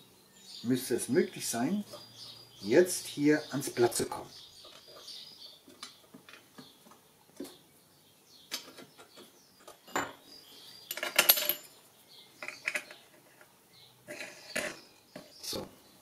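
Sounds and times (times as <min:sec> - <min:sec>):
metal clinks and clatter: 0:10.8 - 0:11.8.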